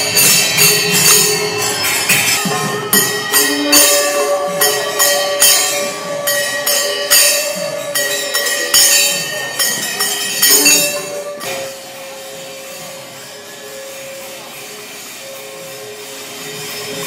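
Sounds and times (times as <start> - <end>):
brass hand cymbals clashing: 0.0 - 17.0
long held note: 2.4 - 9.7.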